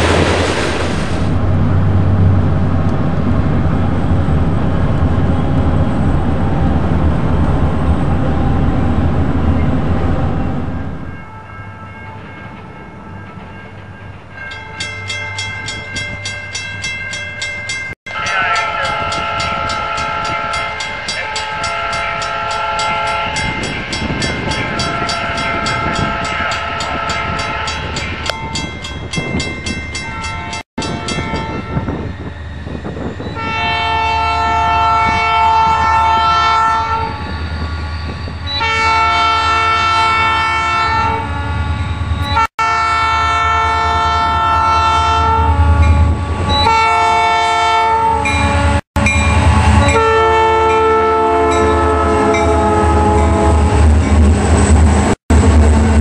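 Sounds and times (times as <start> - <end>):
locomotive and train rumble: 0.0 - 56.0
locomotive air horn blasts: 18.1 - 23.7, 24.6 - 28.0, 33.4 - 37.2, 38.6 - 41.7, 42.3 - 48.8, 49.6 - 53.8.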